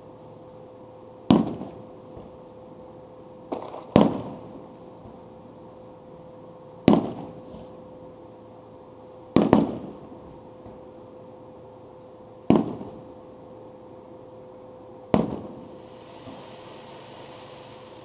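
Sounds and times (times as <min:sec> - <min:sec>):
fireworks exploding: 0:01.3 - 0:02.3, 0:03.5 - 0:05.2, 0:06.9 - 0:07.4, 0:09.4 - 0:10.0, 0:12.5 - 0:13.0, 0:15.1 - 0:16.8.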